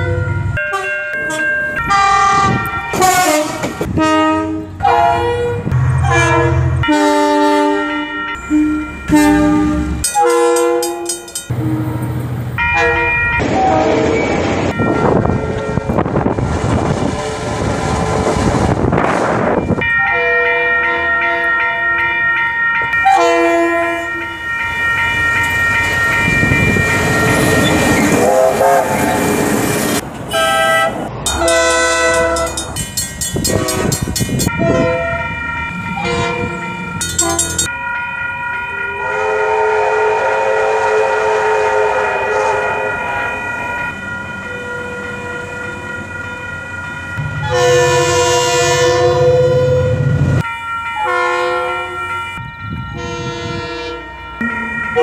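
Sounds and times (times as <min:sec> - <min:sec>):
locomotive air horn blasts: 0:00.0 - 0:12.0, 0:12.7 - 0:18.5, 0:23.0 - 0:24.2, 0:28.0 - 0:29.2, 0:30.3 - 0:32.6, 0:33.4 - 0:35.3, 0:36.0 - 0:37.6, 0:39.0 - 0:43.0, 0:47.4 - 0:52.3, 0:52.9 - 0:54.1
train passing: 0:00.0 - 0:55.0
wheels clicking over rail joints: 0:31.1 - 0:35.4, 0:37.0 - 0:37.7.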